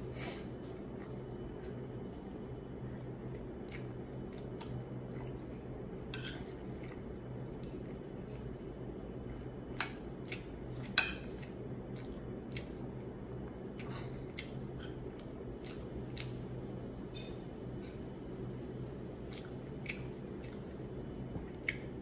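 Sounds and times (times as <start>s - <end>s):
soft chewing: 0.0s - 22.0s
steady low hum: 0.0s - 22.0s.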